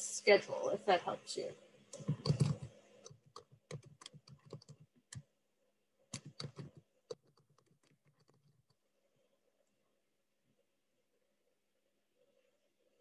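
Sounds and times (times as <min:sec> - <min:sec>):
typing on computer keyboard: 0:02.0 - 0:05.2, 0:06.1 - 0:08.8.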